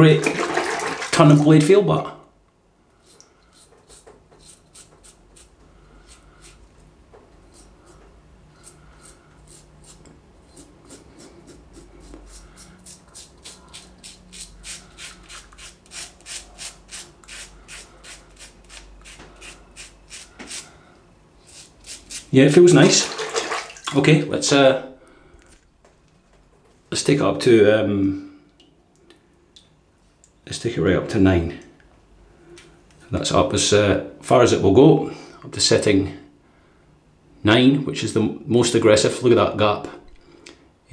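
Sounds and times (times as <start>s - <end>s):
razor cutting stubble: 3.1s - 6.6s.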